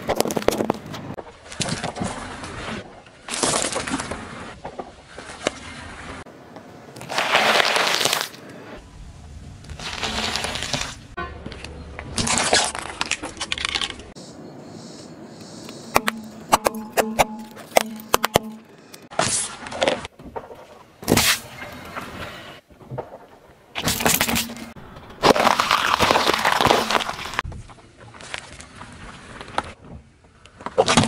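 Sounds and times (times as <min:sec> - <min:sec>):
tyre crushing small objects: 0:00.0 - 0:05.6, 0:07.0 - 0:08.4, 0:09.7 - 0:14.1, 0:23.0 - 0:27.5.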